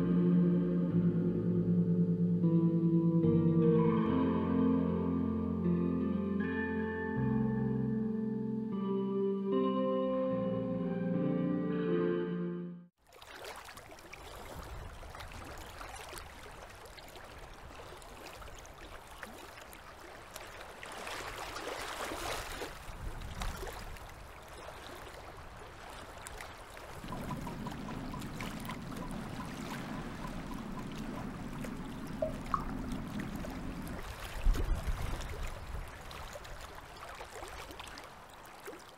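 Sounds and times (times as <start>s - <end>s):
low steady hum: 0.0s - 9.2s, 27.0s - 35.3s
waves washing on sandy beach: 13.2s - 38.9s.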